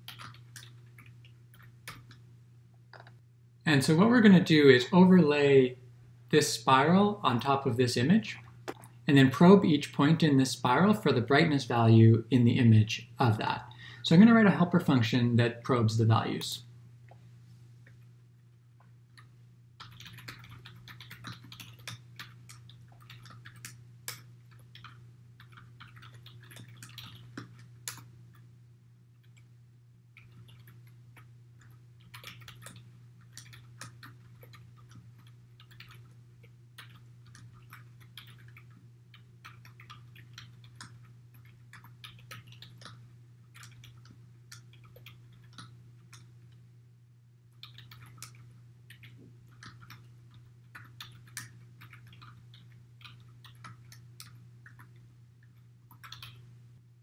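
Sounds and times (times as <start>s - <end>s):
keyboard typing clicks: 0.0s - 2.2s, 19.1s - 28.4s, 30.2s - 46.6s, 47.6s - 56.5s
steady low hum: 0.0s - 57.0s.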